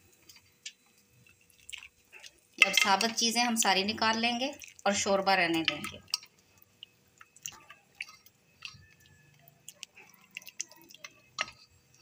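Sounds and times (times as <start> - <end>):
food squelching and dripping: 0.2 - 12.0.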